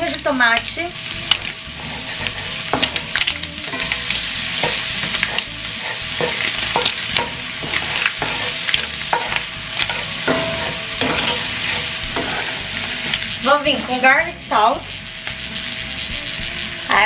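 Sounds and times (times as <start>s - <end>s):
shrimp sizzling in a skillet: 0.0s - 17.0s
wooden spoon scraping a pan: 1.3s - 14.0s.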